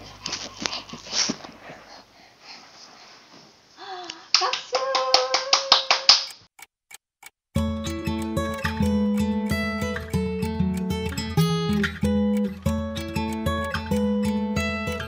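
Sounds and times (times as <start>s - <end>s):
quick hand-clapping: 4.3s - 6.4s
high cheering voice: 4.4s - 6.1s.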